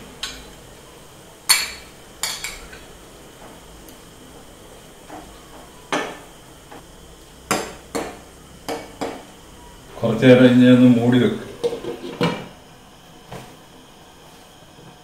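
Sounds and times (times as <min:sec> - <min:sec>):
ladle scraping a pan: 0:11.6 - 0:12.4.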